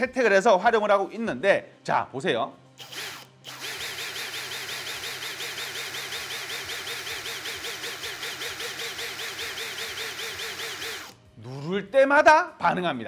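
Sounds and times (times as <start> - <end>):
cordless drill motor whirring: 2.8 - 11.2.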